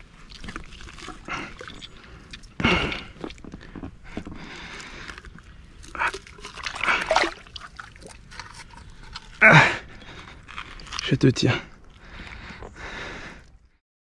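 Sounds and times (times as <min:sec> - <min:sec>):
water splashing from thrashing fish: 0:05.9 - 0:08.7.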